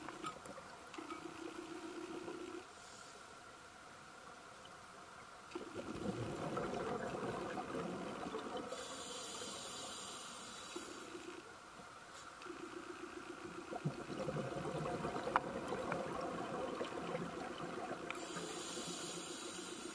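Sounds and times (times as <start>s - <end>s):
hissing breath through regulator: 2.7s - 3.4s, 8.7s - 11.3s, 18.1s - 19.9s
gurgle of exhaled bubbles: 5.6s - 8.7s, 13.4s - 18.2s.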